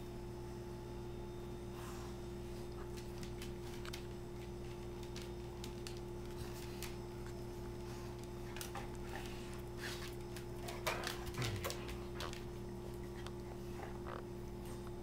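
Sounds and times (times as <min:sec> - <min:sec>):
steady low hum: 0:00.0 - 0:15.0
dog claws clicking on tile: 0:02.6 - 0:13.5.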